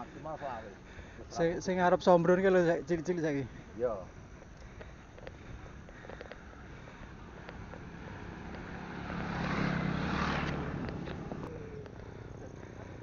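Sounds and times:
motor scooter passing: 0:05.0 - 0:13.0.

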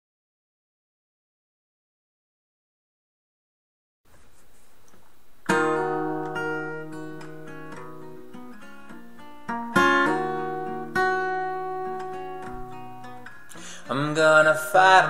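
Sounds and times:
acoustic guitar strumming chords: 0:05.4 - 0:15.0.

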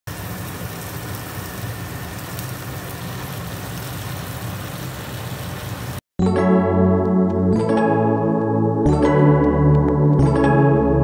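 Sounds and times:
piano music: 0:06.2 - 0:11.0.

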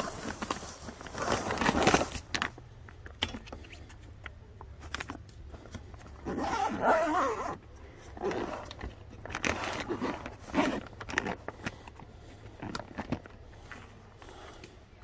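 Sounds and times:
cooler bag rustling: 0:00.0 - 0:02.6.

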